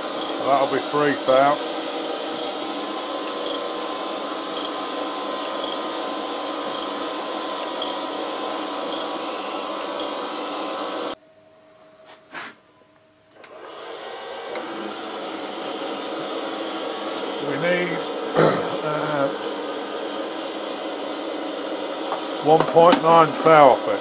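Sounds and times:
grinder wheel grinding steel: 0.0 - 11.2.

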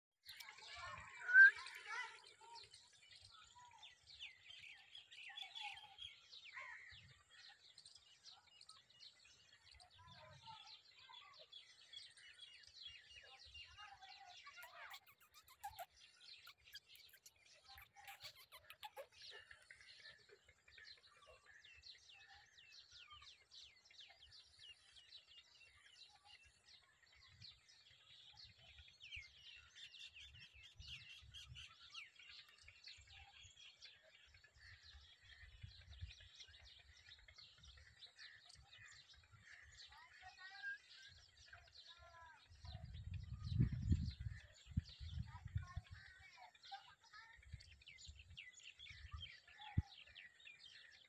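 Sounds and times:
birds chirping: 0.2 - 51.0
lower wavering bird calls: 0.7 - 2.2.

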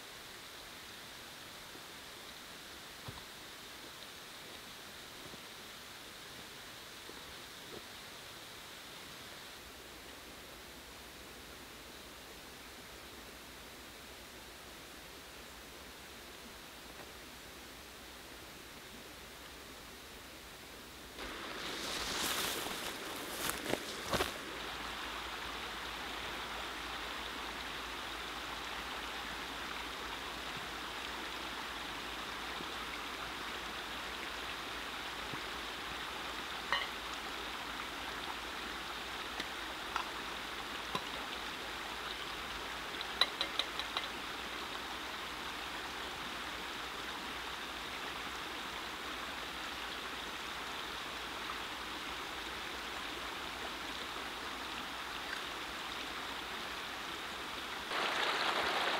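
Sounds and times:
stream running over rocks: 0.0 - 58.9
metal pot clinking: 36.7 - 37.0.

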